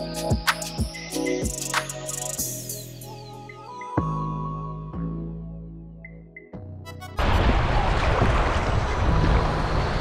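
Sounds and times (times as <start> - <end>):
background music: 0.0 - 7.3
water washing around hull: 7.2 - 10.0.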